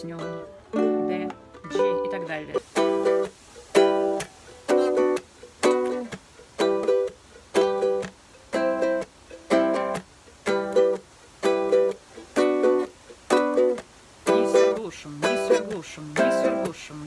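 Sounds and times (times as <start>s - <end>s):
ukulele strummed in reggae pattern: 0.0s - 17.0s.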